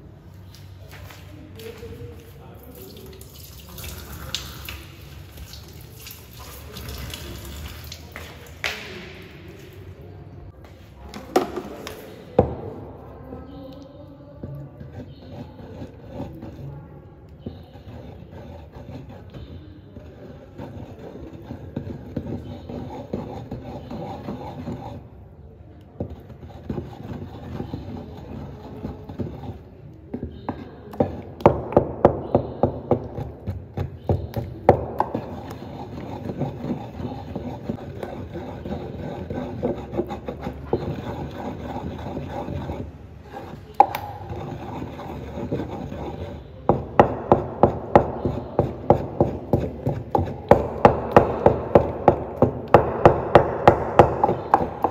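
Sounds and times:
wooden pestle knocking in mortar: 30.5 - 42.7, 43.7 - 54.9.

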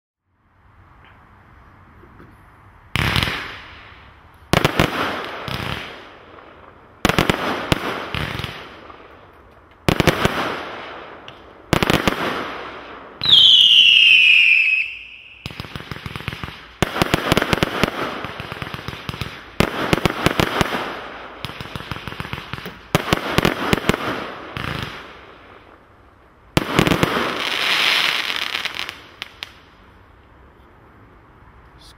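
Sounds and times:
firework shots: 2.9 - 9.2, 9.8 - 25.5, 26.5 - 29.6
firework crackling: 2.9 - 30.0
falling firework whistle: 13.2 - 15.7.

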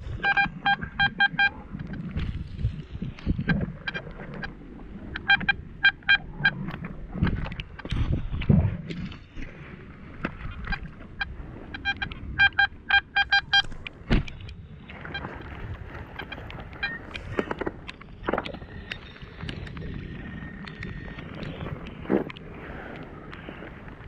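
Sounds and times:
pinpointer steady tone: 0.0 - 7.9, 10.5 - 22.4
metal detector beeps: 0.1 - 2.0, 3.3 - 6.7, 10.7 - 13.8, 14.9 - 17.7.

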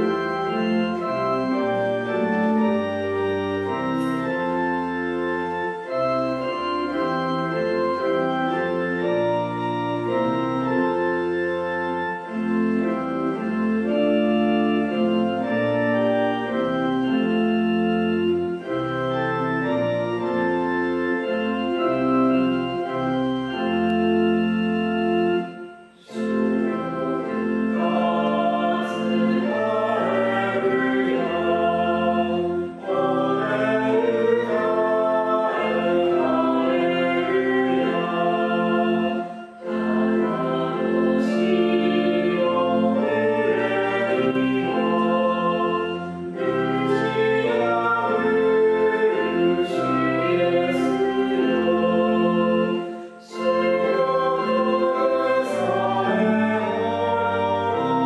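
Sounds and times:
church organ playing a hymn: 0.0 - 58.0
voices singing: 26.0 - 58.0.

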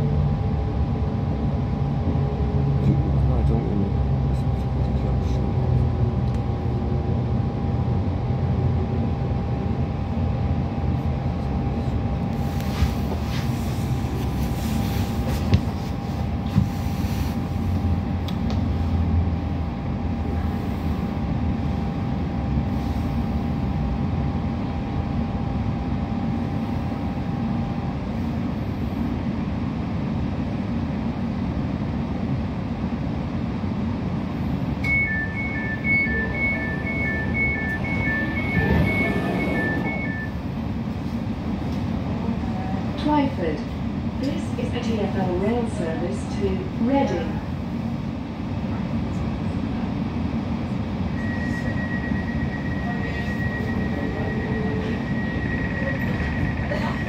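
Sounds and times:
two-tone electronic beeping: 34.8 - 40.4
thin brake whine: 34.8 - 40.6, 51.1 - 57.0
train wheels rumbling: 34.9 - 57.0.

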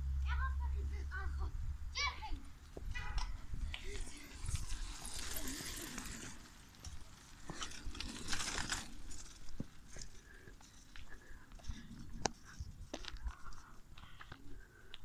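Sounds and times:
wind rumbling on microphone: 1.3 - 6.4, 11.5 - 14.7
tyres on gravel: 2.5 - 15.0.

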